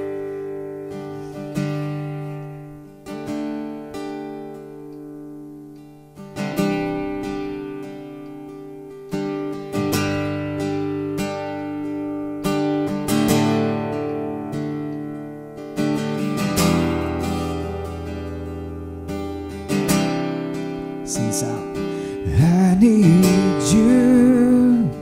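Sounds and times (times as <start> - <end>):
acoustic guitar strumming: 0.0 - 25.0
person singing: 21.0 - 25.0.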